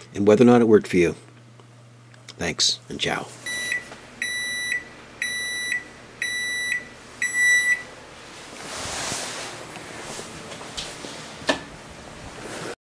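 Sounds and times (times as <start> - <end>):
microwave control panel beeping: 3.5 - 8.0.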